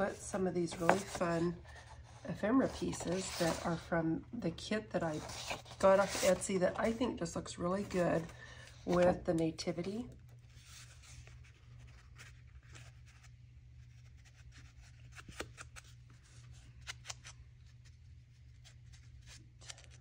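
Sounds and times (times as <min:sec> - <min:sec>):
low steady hum: 0:00.0 - 0:20.0
paper tags rustling and clicking: 0:00.6 - 0:03.8.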